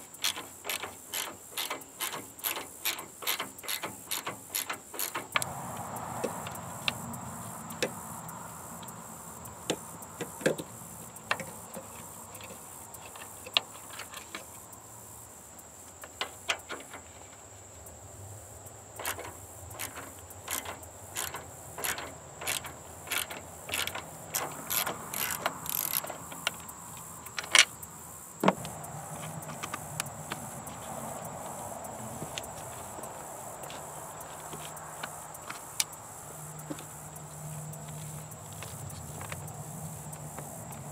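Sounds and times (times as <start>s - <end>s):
ratchet wrench clicking: 0.1s - 5.5s, 19.0s - 27.9s.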